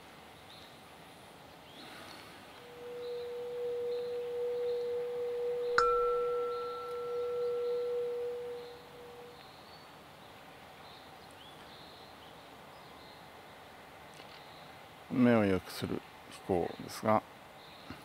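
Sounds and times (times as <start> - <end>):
low bell tone ringing: 3.4 - 9.4
higher bell strike ringing: 3.5 - 9.4.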